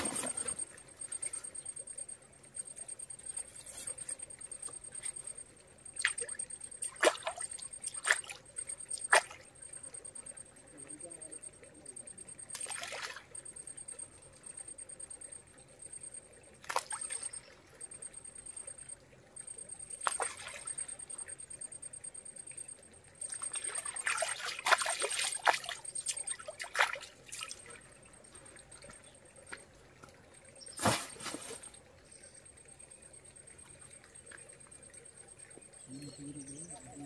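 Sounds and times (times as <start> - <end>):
water splashing and trickling: 5.9 - 9.6, 12.5 - 13.4, 20.0 - 21.4, 23.0 - 32.7.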